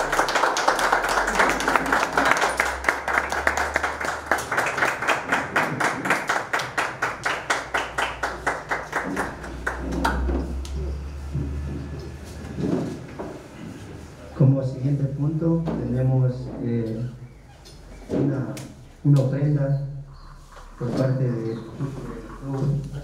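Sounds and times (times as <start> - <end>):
group applauding: 0.0 - 10.8
rhythmic claps in unison: 0.0 - 10.8.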